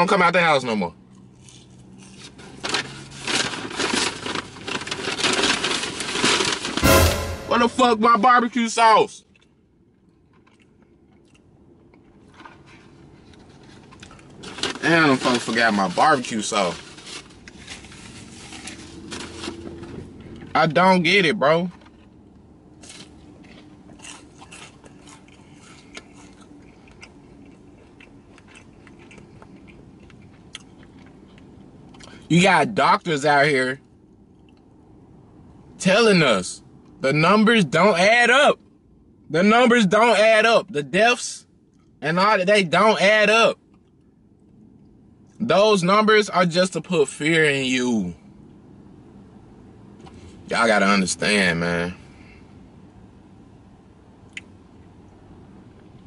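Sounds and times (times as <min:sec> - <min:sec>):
paper bag crinkling and rustling: 0:02.6 - 0:06.8
person chewing food: 0:10.4 - 0:11.4, 0:22.8 - 0:32.2.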